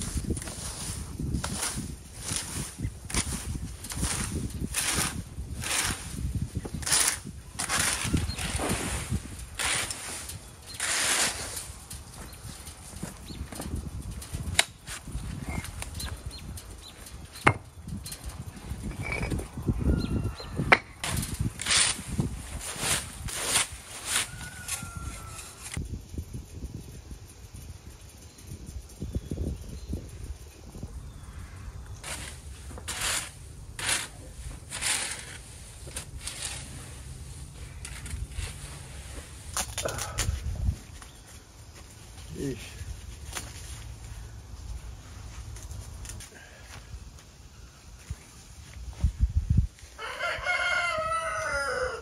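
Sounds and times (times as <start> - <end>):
leaves being raked: 0.0 - 13.2, 21.0 - 25.8, 32.0 - 46.2.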